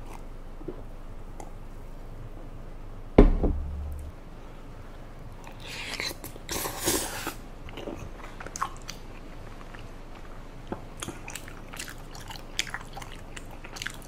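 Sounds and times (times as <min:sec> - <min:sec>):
chewing mouth sounds: 0:11.0 - 0:14.0.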